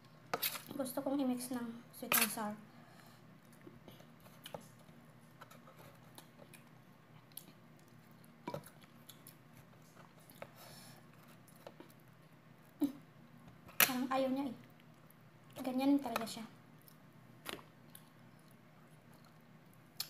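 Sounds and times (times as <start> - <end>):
chewing: 16.8 - 19.5.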